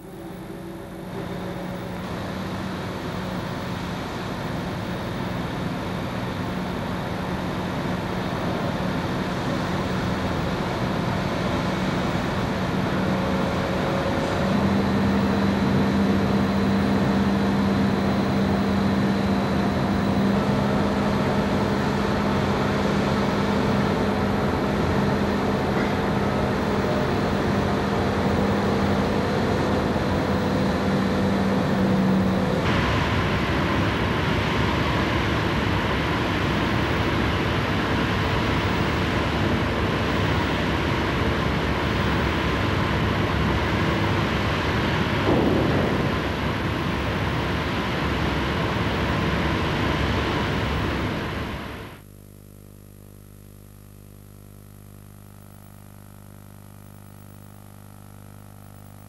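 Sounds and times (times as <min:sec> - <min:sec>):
crane diesel engine under load: 0:00.0 - 0:52.0
steady hum: 0:00.0 - 0:59.0.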